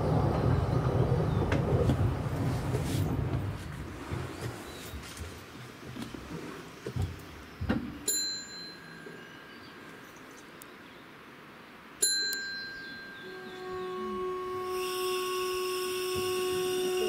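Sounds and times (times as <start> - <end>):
bell ringing: 8.1 - 9.2, 12.0 - 13.5.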